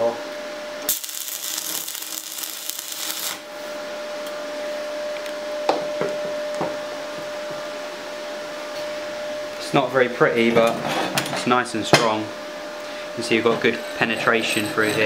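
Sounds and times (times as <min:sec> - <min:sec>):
welding arc hissing: 0:00.8 - 0:03.5.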